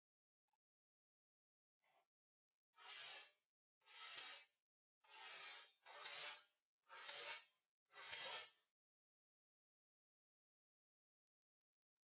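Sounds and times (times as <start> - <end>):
sharpener rasping on axe blade: 2.8 - 8.6.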